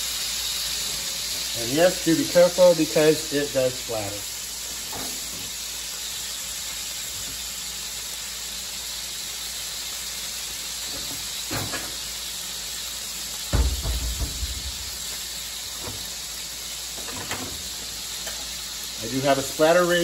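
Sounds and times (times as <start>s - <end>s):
meat sizzling in a frying pan: 0.0s - 20.0s
grease popping: 10.5s - 19.2s
dull thump: 13.5s - 15.0s.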